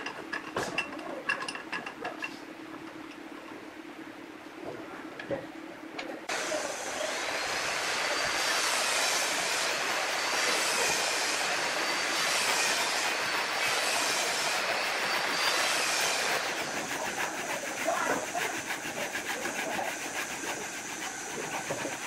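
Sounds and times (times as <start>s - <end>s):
handsaw sawing wood: 6.3s - 22.0s.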